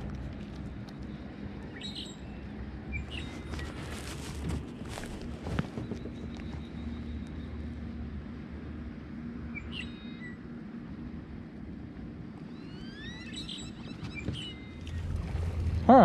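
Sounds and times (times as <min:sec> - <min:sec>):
birds calling: 0:01.6 - 0:07.7, 0:09.5 - 0:10.4, 0:12.4 - 0:16.0
rising whistled bird notes: 0:12.5 - 0:15.0.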